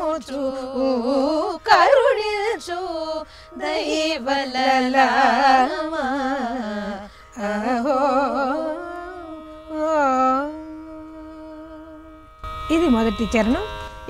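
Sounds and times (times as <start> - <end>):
women singing together: 0.0 - 10.5
steady drone: 0.0 - 14.0.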